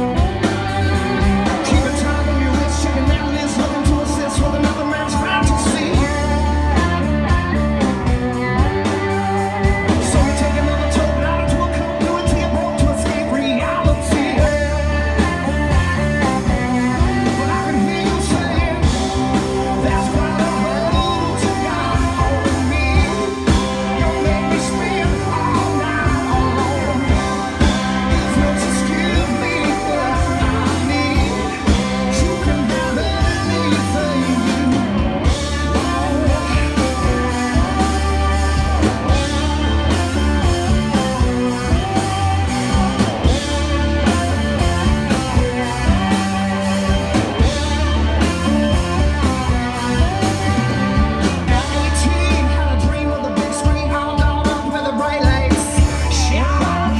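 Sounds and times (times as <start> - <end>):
bass guitar: 0.0 - 56.9
distorted electric guitars: 0.0 - 56.9
drum kit with busy cymbals: 0.0 - 56.9
person singing: 0.0 - 56.9.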